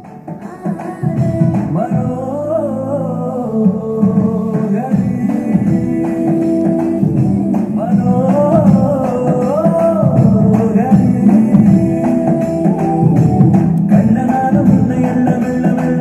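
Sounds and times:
song with singing voice: 0:00.0 - 0:16.0.

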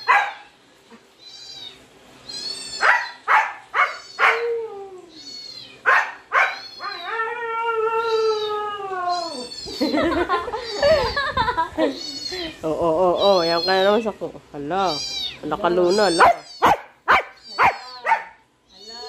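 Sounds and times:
cat meowing: 0:01.2 - 0:07.2, 0:08.0 - 0:09.9, 0:13.2 - 0:14.0, 0:14.8 - 0:19.0.

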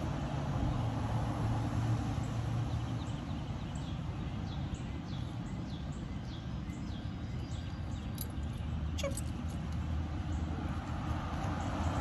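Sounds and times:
bird chirping: 0:02.7 - 0:10.5.

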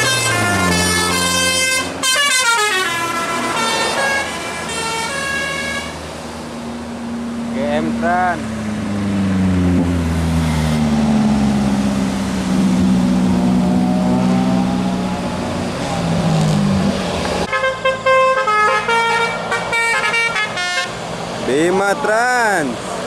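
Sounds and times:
multi-tone musical bus horn: 0:00.0 - 0:06.0, 0:17.5 - 0:21.0
bus engines running: 0:00.0 - 0:23.0.

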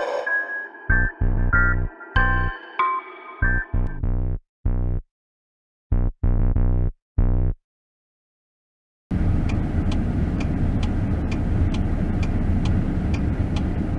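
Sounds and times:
deep synth stabs: 0:00.0 - 0:02.6, 0:03.4 - 0:05.0, 0:05.9 - 0:07.6
turn signal ticking: 0:09.2 - 0:13.8.

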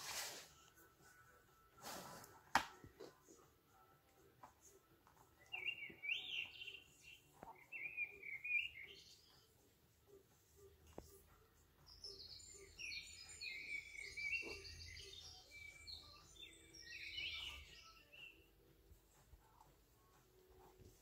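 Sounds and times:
recorded bird chirps from toy speaker: 0:05.4 - 0:09.3.

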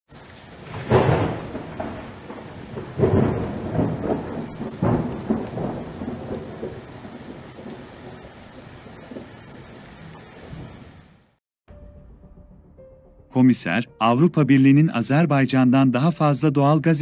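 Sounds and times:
rain hissing: 0:00.1 - 0:11.4
thunder claps rolling: 0:00.2 - 0:11.3.

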